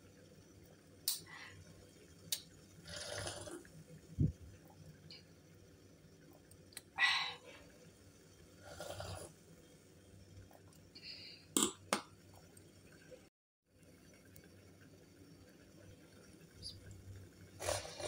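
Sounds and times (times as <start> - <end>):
person slurping juice: 2.8 - 3.7, 8.6 - 9.4, 17.6 - 18.0.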